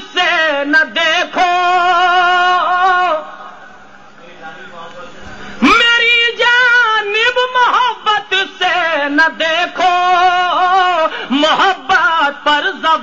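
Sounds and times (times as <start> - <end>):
man singing melodic verse: 0.0 - 3.7, 5.6 - 13.0.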